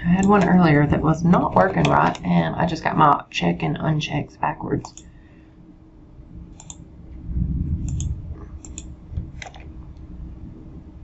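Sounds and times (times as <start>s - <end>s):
low muffled rumble: 0.0s - 3.9s, 6.1s - 11.0s
computer mouse and keyboard clicks: 0.1s - 0.6s, 1.3s - 2.3s, 6.6s - 6.8s, 7.8s - 9.7s.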